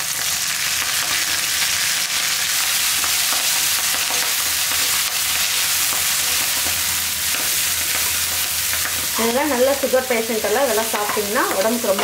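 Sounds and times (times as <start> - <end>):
vegetables sizzling in oil: 0.0 - 12.0
spatula stirring and scraping: 2.9 - 9.2.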